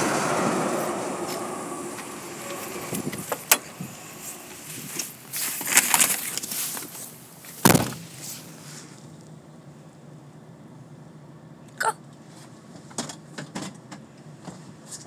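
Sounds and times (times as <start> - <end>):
freight train rumble: 0.0 - 11.5.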